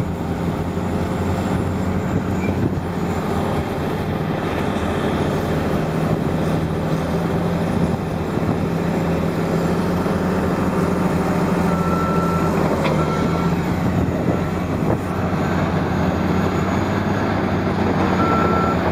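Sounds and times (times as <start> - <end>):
bulldozer diesel engines running: 0.0 - 18.9
reversing alarm beeping: 11.3 - 18.9.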